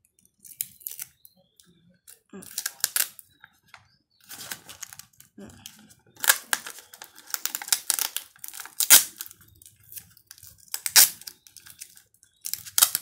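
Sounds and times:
paper crinkling: 2.4s - 3.2s, 4.2s - 13.0s
sticky tape ripping off roll: 2.5s - 3.2s, 6.2s - 9.3s, 10.7s - 13.0s.

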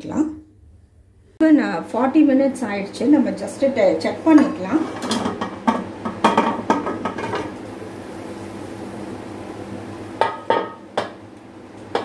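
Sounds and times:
steady low hum: 0.0s - 12.0s
metal lid scraping and clanking: 4.4s - 5.6s.

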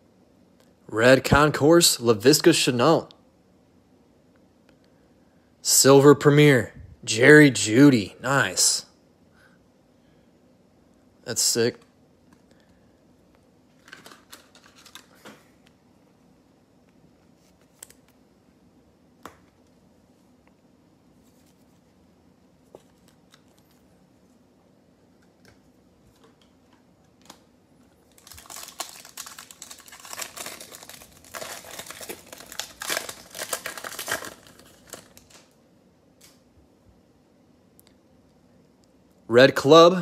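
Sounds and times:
foil wrapper crinkling: 13.7s - 15.2s, 28.0s - 35.6s.

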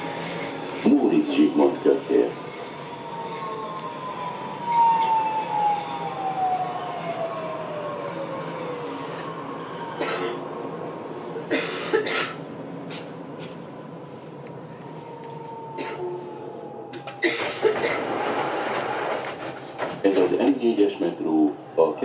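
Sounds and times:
train running rumble: 0.0s - 21.6s.

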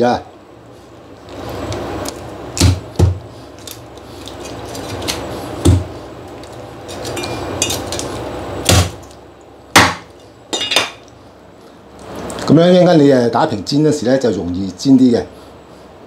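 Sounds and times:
cleaver chopping on wooden block: 2.6s - 3.2s, 5.6s - 5.9s, 8.6s - 9.0s, 9.8s - 10.1s.

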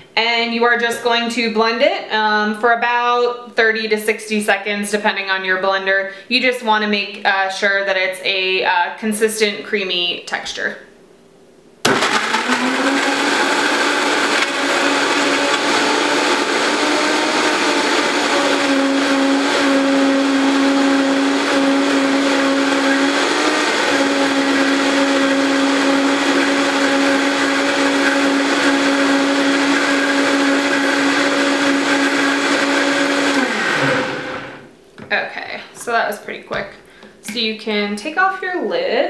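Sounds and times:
blender motor whining: 11.9s - 34.7s.

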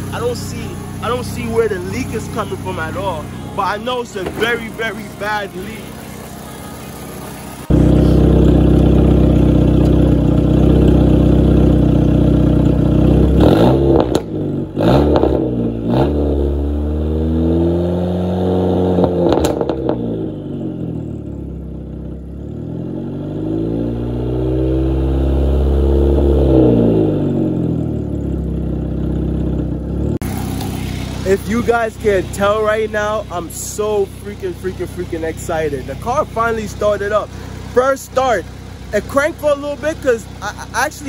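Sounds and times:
car engine idling and revving: 0.0s - 41.0s
sharp clattering exhaust cracks: 7.2s - 14.4s, 30.2s - 41.0s.

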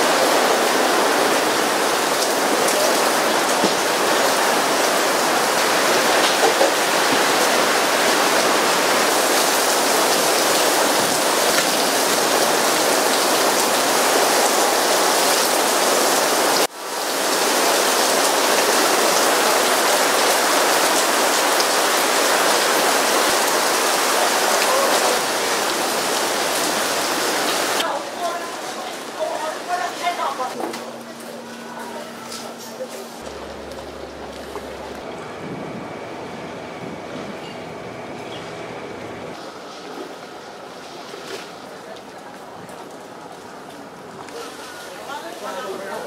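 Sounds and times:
heavy rain pouring: 0.0s - 46.0s.

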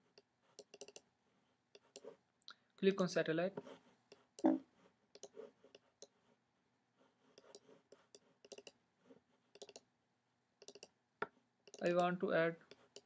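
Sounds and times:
faint computer mouse clicks: 5.2s - 6.2s, 7.4s - 8.8s, 9.5s - 9.9s, 10.6s - 11.0s.

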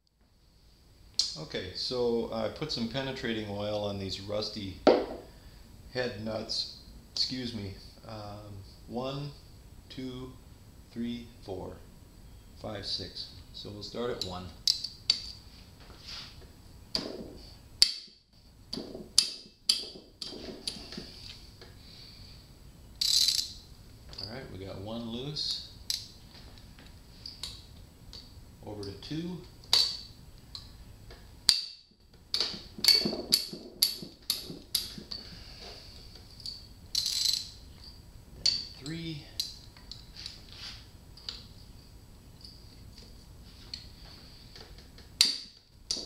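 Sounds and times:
ratchet wrench clicking on nut: 23.0s - 23.5s, 36.4s - 37.5s.

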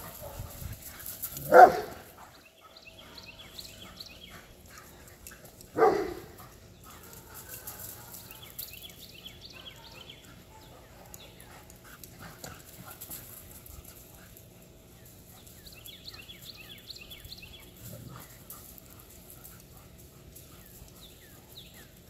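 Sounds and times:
dog barking: 1.4s - 2.0s, 5.8s - 6.4s, 9.5s - 11.3s.

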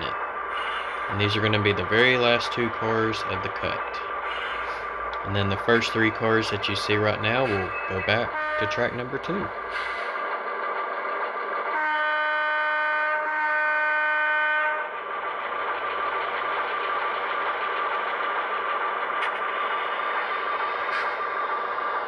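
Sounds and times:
diesel engine running: 0.0s - 11.7s
model locomotive horn: 7.4s - 9.2s, 11.7s - 14.9s.

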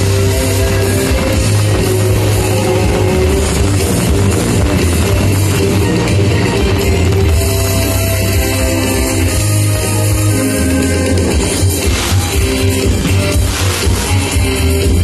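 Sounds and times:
loud rock music: 0.0s - 15.0s.

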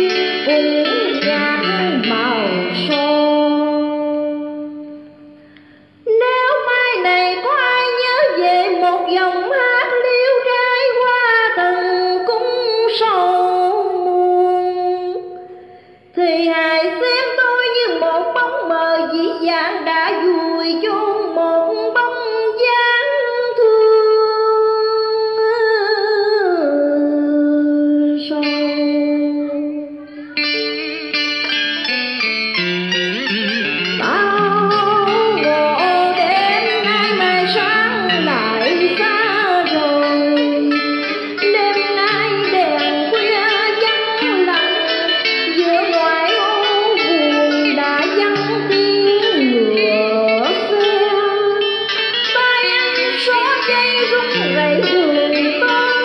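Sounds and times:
plucked-string melody: 0.0s - 15.6s, 27.2s - 56.0s
woman singing into microphone: 0.0s - 32.0s, 33.3s - 56.0s.

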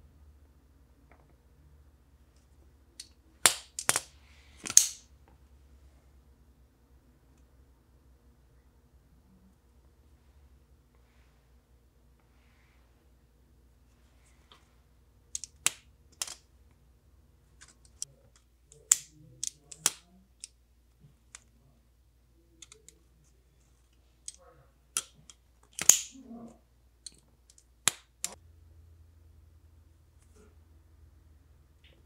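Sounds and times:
folding knife clicking open and shut: 3.0s - 5.0s, 25.7s - 26.1s
soft handling sounds: 13.8s - 15.5s.

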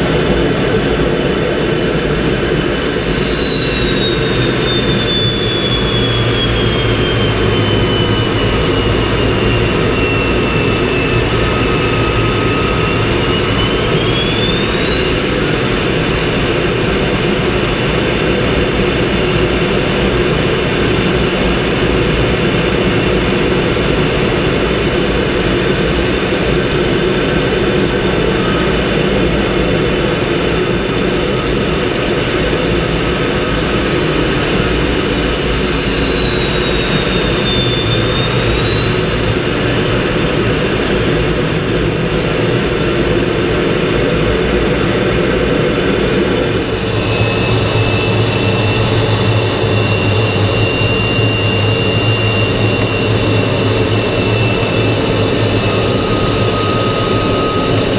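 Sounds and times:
jet turbine whine: 0.0s - 57.9s
rush of airflow: 45.8s - 57.9s.

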